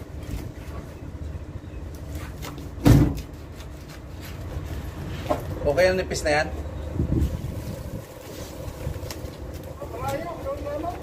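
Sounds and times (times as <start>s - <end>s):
traffic rumble: 0.0s - 11.0s
wind: 0.0s - 11.0s
dull thump: 2.8s - 3.3s.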